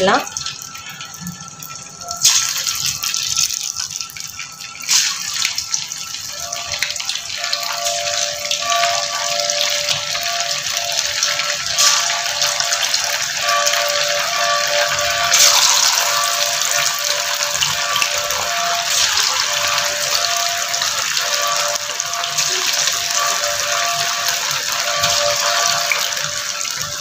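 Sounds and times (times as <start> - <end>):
chicken deep-frying in hot oil: 0.0 - 27.0.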